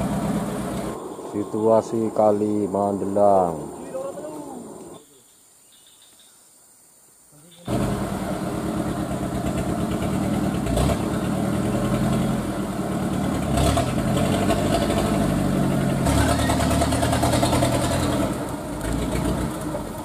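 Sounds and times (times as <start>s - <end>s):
truck diesel engine under load: 0.0s - 2.3s, 7.7s - 20.0s.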